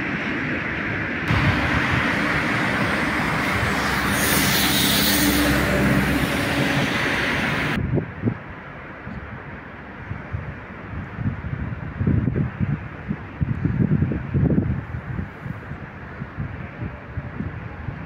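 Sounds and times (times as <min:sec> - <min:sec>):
rail and road vehicles: 0:00.0 - 0:18.0
bright hissing: 0:01.3 - 0:07.8.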